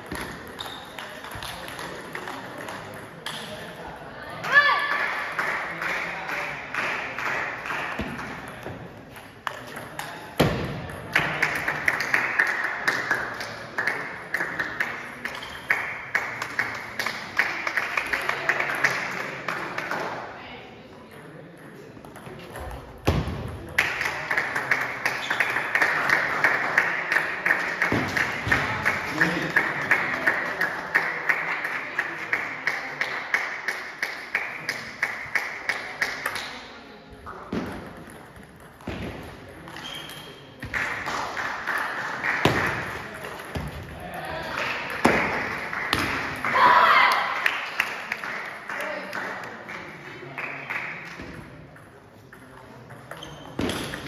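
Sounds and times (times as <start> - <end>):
table tennis balls clicking: 0.0 - 3.7, 37.6 - 41.1.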